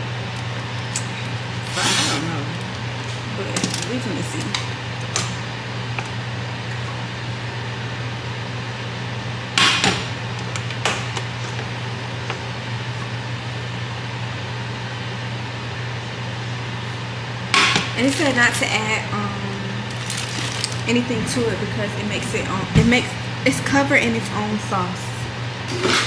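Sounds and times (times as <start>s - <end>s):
low appliance hum: 0.0s - 26.0s
plastic bag crinkling: 19.9s - 20.9s.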